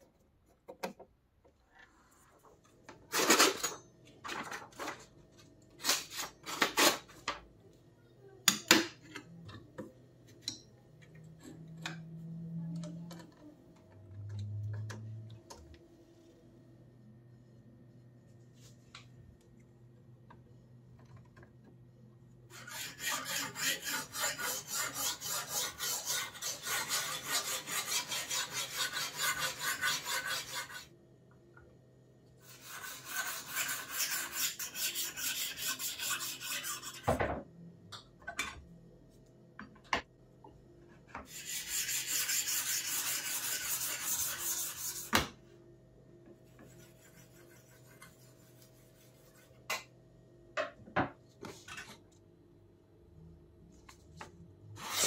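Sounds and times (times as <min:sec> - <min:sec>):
stone scraping knife blade: 0:22.6 - 0:30.8.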